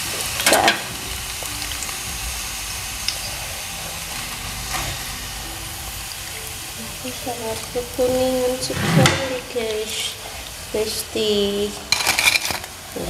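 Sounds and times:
food sizzling in hot oil: 0:00.0 - 0:13.0
metal skimmer scraping pan: 0:07.0 - 0:10.1, 0:11.8 - 0:13.0.

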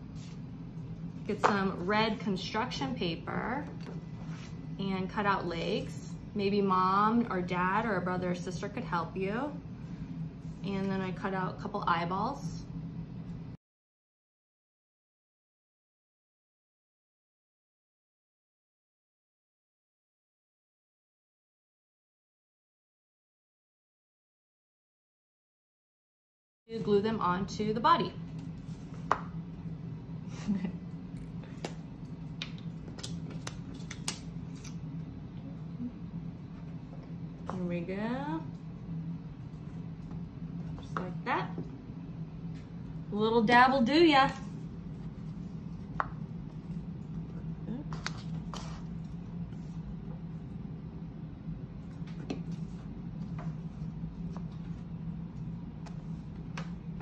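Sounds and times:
steady low hum: 0:00.0 - 0:13.6, 0:26.7 - 0:57.0.

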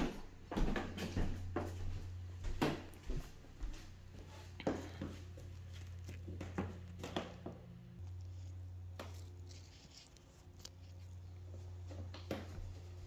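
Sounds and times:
footsteps on wooden floorboards: 0:00.0 - 0:07.6
low steady hum: 0:01.2 - 0:13.0.

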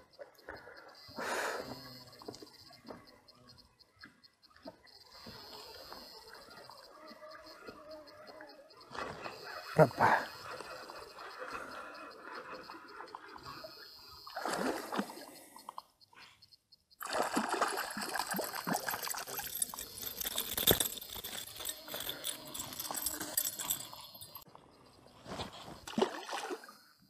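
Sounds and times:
fish splashing at water surface: 0:17.0 - 0:20.9
fishing reel clicks: 0:18.6 - 0:24.4.

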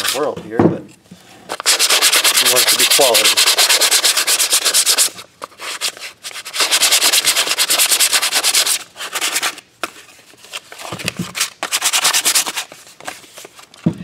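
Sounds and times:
sandpaper rubbing on wood: 0:00.0 - 0:00.2, 0:01.5 - 0:09.6, 0:11.6 - 0:12.7.

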